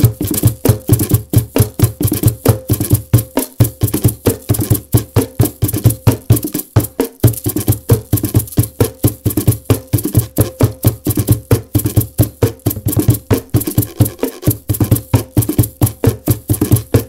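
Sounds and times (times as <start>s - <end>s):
container shakers: 0.0s - 17.0s
bucket drum thumps: 9.7s - 17.0s
chip can guiro scraping: 13.5s - 14.7s.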